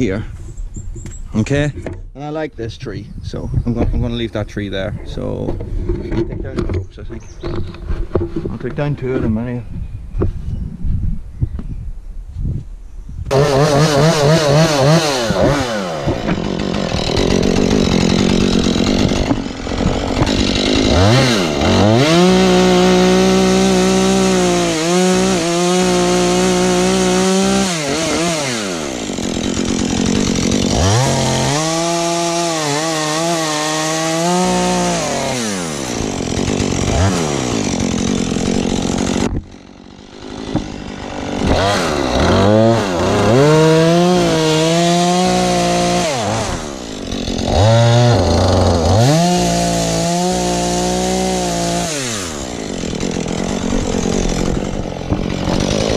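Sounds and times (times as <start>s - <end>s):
chainsaw revving and cutting: 13.3s - 55.9s.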